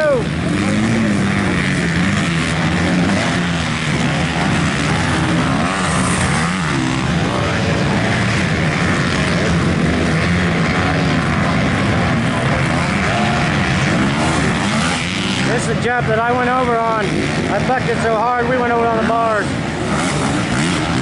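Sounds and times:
dirt bike engines revving: 0.0 - 21.0.

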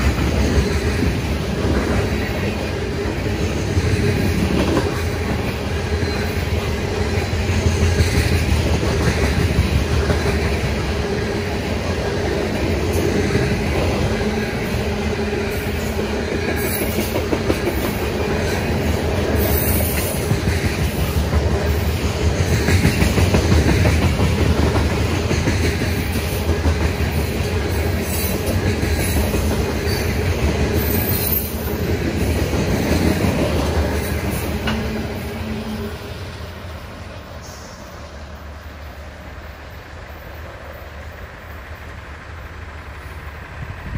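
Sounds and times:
train wheels rumbling on rail: 0.0 - 43.9
train wheel clicks: 3.0 - 6.3, 16.4 - 35.2.

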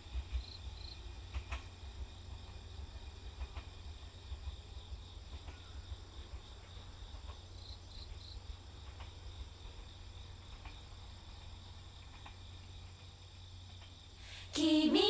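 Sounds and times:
insects chirring: 0.2 - 15.0
faint ticks: 10.5 - 14.0.

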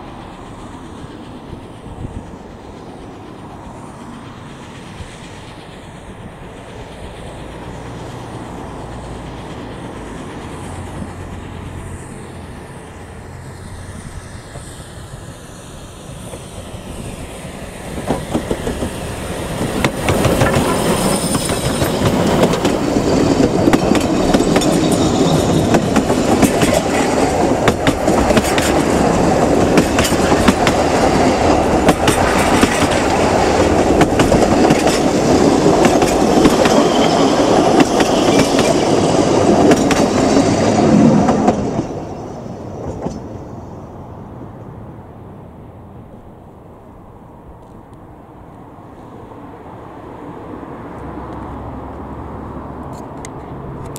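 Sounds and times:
steam train approaching: 0.0 - 53.9
wheels clacking over rail joints: 16.0 - 43.4.

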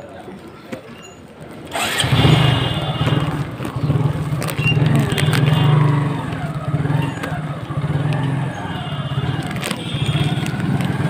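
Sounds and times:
vehicle engine running: 1.7 - 11.0.

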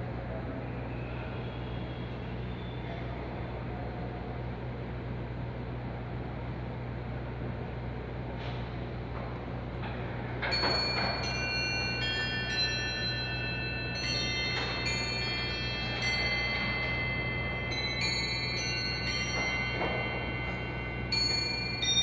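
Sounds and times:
clock chime bells playing tune: 10.4 - 22.0.

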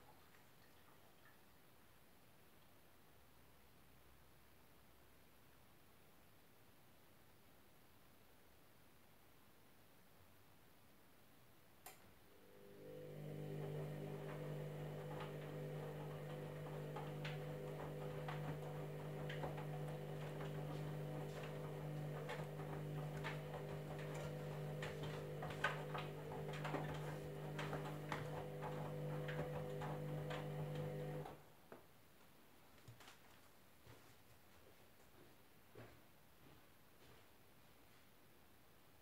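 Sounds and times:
washing machine motor hum: 12.3 - 31.4.

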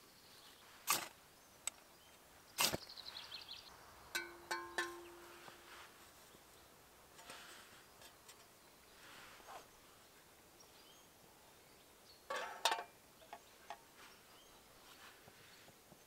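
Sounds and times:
metal pot and spoon clattering: 4.1 - 5.4, 12.3 - 13.0
light metal clinks: 4.1 - 5.7
soft rustling of handling: 5.2 - 10.3, 13.4 - 16.0.

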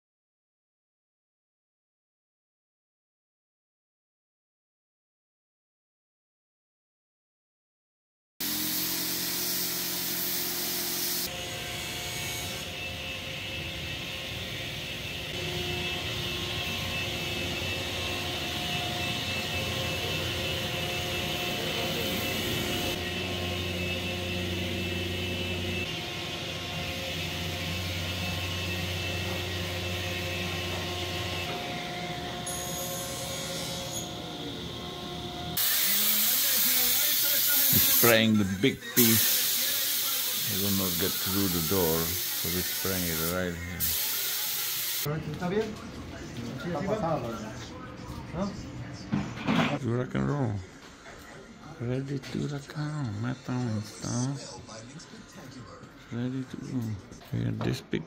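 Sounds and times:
shop machinery motor hum: 8.4 - 36.0
electric sander on wood: 8.4 - 37.0, 40.4 - 45.1.

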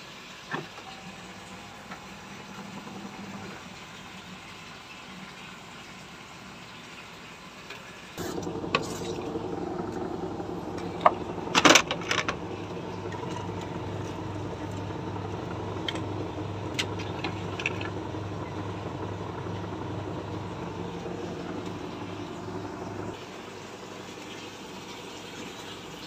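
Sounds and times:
washing machine humming: 0.0 - 26.0.

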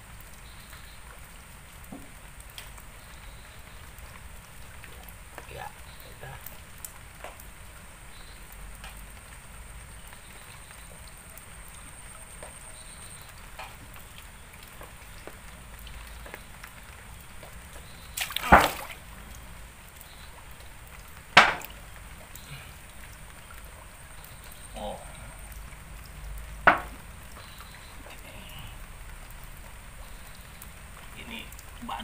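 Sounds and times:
small drips and ticks: 0.0 - 32.0
muddy water splashing: 10.2 - 32.0.

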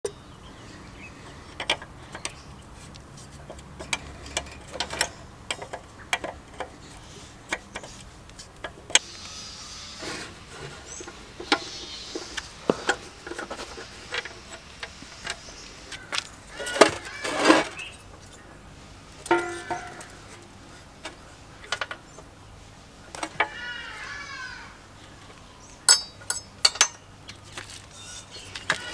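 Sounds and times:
metal parts scraping and knocking: 1.5 - 9.0, 9.9 - 18.4, 19.2 - 22.0, 25.8 - 28.9
wrench clinking and ratcheting: 25.9 - 27.0.

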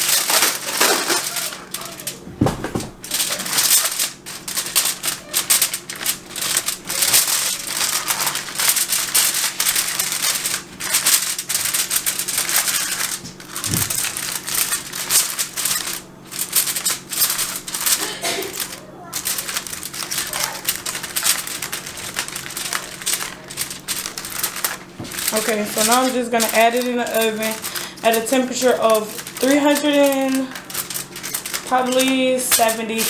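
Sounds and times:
aluminum foil crinkling: 0.0 - 33.0.

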